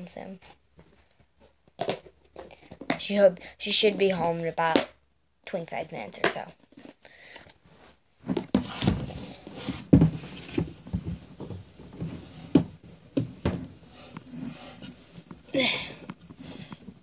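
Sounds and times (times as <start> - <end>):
clothing rubbing on microphone: 8.6 - 15.5.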